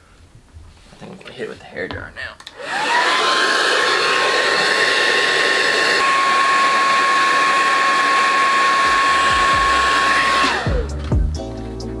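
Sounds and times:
hair dryer running: 0:02.5 - 0:11.0.

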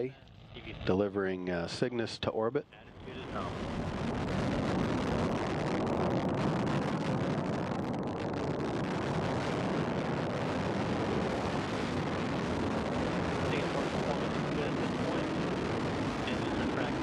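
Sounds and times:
rocket engines roaring: 0:00.0 - 0:17.0.

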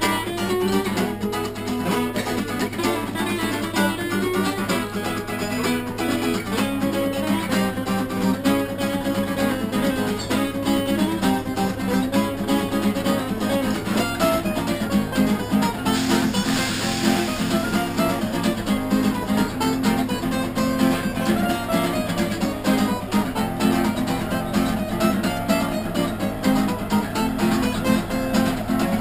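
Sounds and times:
acoustic guitars strummed and picked: 0:00.0 - 0:29.0.

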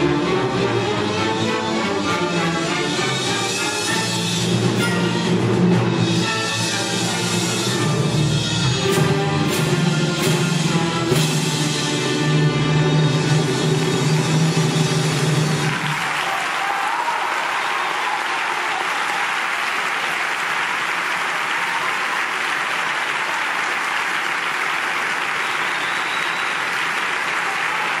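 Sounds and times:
steady applause: 0:13.3 - 0:28.0.

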